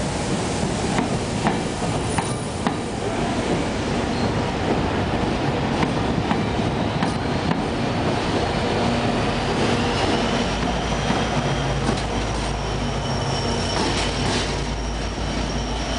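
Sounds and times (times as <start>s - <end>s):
diesel locomotive engine drone: 0.0s - 15.9s
high wheel squeal: 9.3s - 15.9s.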